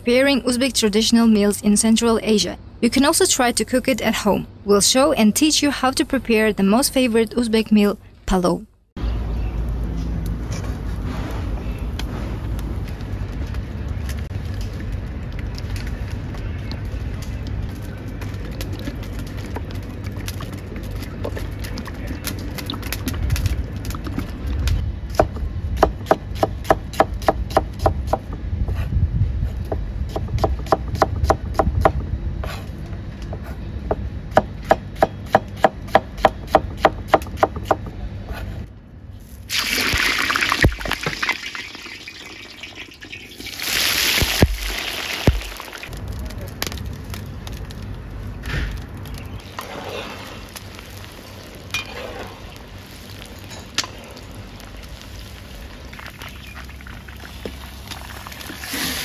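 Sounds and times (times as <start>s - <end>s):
low steady rumble: 0.0s - 43.7s, 44.3s - 59.0s
food sizzling in hot oil: 39.5s - 45.9s, 52.4s - 59.0s.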